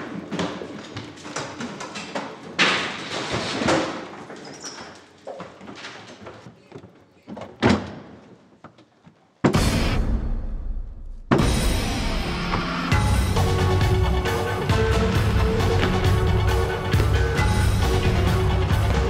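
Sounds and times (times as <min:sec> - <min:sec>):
deep musical hit: 0:09.6 - 0:19.0
hurried footsteps and scuffling: 0:14.1 - 0:19.0.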